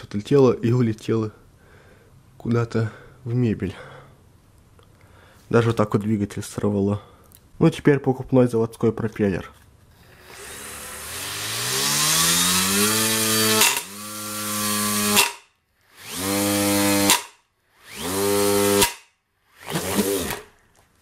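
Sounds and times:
rc motor whine: 10.1s - 15.3s.

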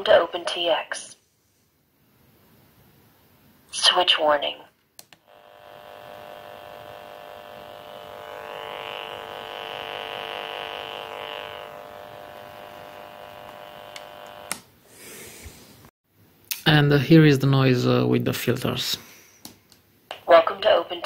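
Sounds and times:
click: 5.0s - 5.2s, 13.4s - 14.6s
electrical buzz from radio speaker: 5.2s - 14.6s.

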